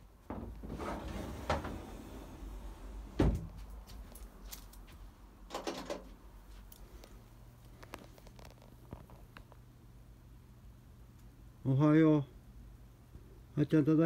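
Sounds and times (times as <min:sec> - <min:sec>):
rustling and handling noise: 0:03.3 - 0:09.7.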